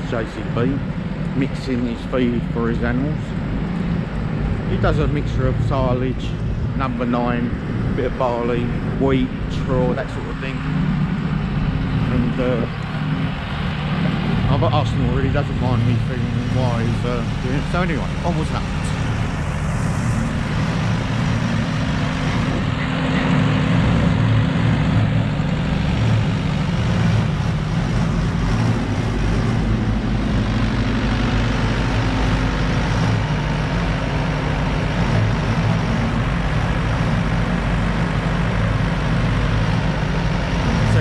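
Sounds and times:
diesel engine running: 0.0 - 41.0.

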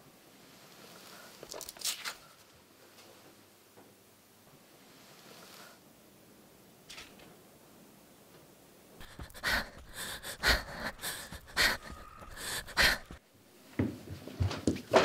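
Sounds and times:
person panting heavily: 9.0 - 13.2.

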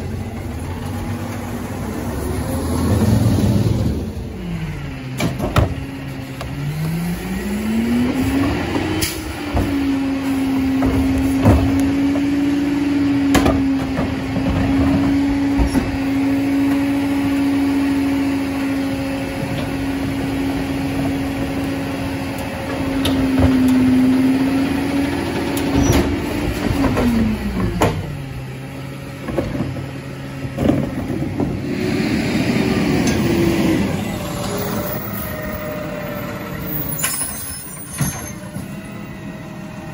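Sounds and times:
garbage truck diesel engine revving: 0.0 - 39.9.

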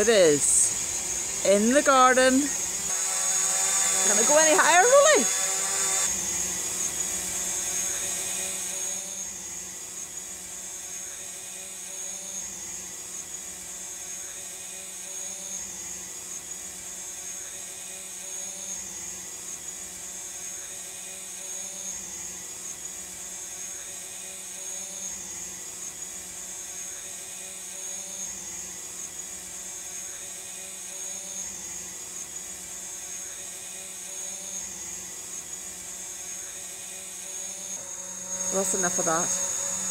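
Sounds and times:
drone propellers whirring: 0.0 - 17.2, 27.3 - 39.9.

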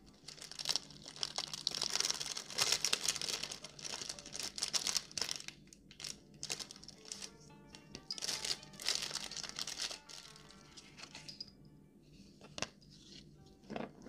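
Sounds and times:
plastic sleeve crinkling: 0.0 - 7.4, 8.0 - 11.4.

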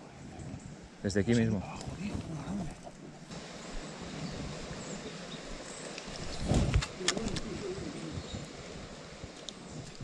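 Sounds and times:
pigeon cooing: 6.9 - 8.5.

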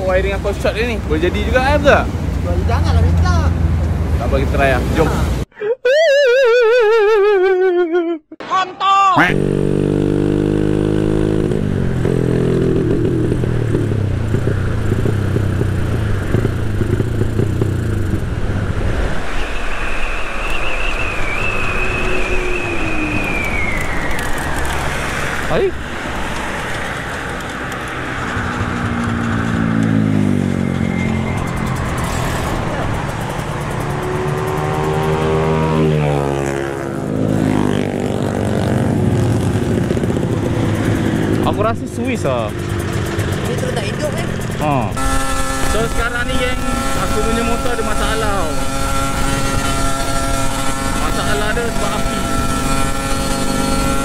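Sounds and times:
wind and road noise: 0.0 - 5.5, 9.2 - 54.0
motorcycle engine running: 9.3 - 18.5, 22.0 - 54.0
steady high whine: 18.1 - 26.1.

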